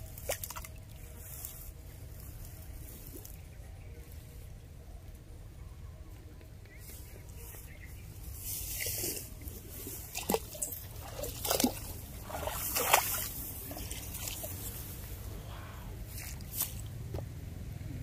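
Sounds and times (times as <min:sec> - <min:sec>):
water sloshing and splashing: 0:00.0 - 0:01.6, 0:08.3 - 0:15.3
low steady rumble: 0:00.0 - 0:18.0.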